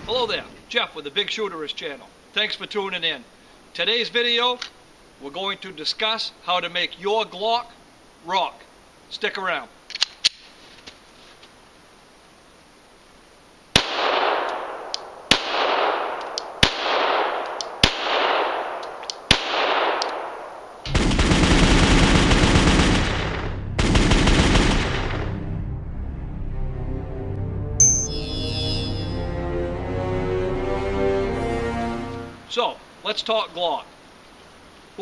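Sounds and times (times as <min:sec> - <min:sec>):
pistol shots with echo: 0:13.8 - 0:21.6
loud intro music: 0:22.4 - 0:32.5.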